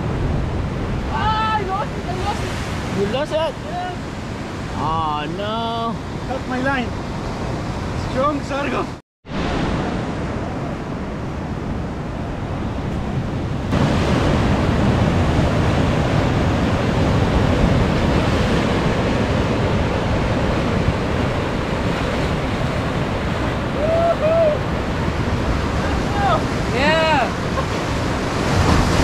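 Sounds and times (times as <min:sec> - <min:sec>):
wind buffeting microphone: 0:00.0 - 0:29.0
surf breaking on rocks: 0:13.6 - 0:29.0.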